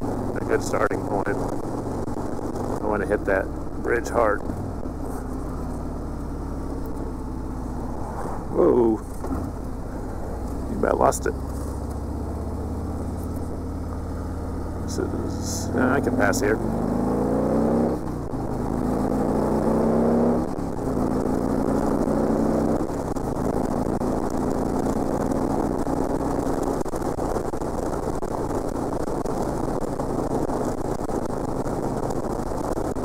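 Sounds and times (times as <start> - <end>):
motorcycle engine accelerating: 0.0 - 33.0
wind on microphone: 7.6 - 10.7.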